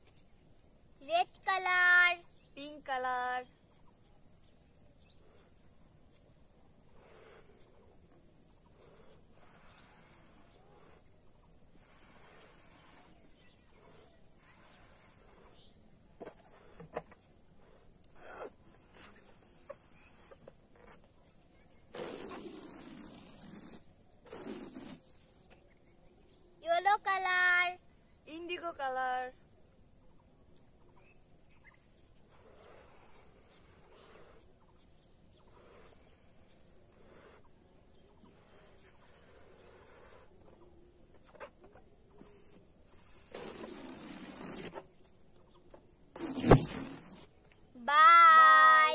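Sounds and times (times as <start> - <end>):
high insect buzz: 0.0 - 29.5, 30.9 - 48.9
steady high-pitched hiss: 0.0 - 48.9
breath puffs inflating balloons: 6.8 - 17.0, 17.6 - 20.9, 21.8 - 25.5, 32.2 - 40.7, 42.1 - 45.0, 46.1 - 47.4.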